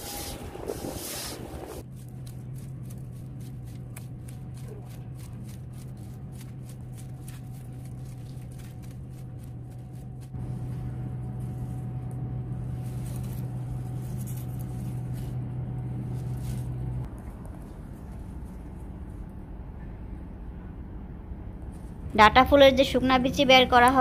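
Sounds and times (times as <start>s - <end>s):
hand tool scratching dry soil: 0.0s - 10.3s, 12.8s - 15.4s
low mechanical hum: 0.0s - 24.0s.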